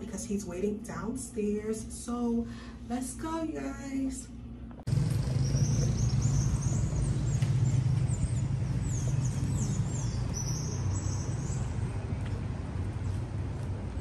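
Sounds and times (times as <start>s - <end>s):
vehicle low rumble: 4.6s - 14.0s
birds chirping: 4.9s - 12.4s.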